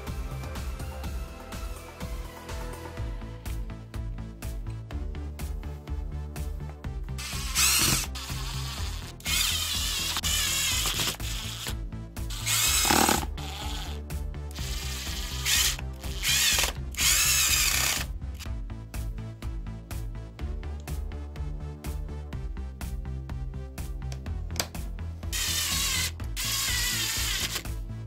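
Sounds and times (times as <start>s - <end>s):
background music with steady beat: 0.0s - 28.0s
cordless drill whirring: 7.2s - 18.1s, 25.3s - 27.7s.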